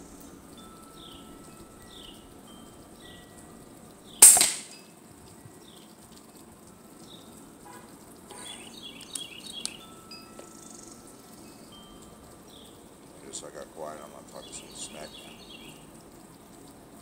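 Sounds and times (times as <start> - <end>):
air rifle shot: 4.2 - 4.7.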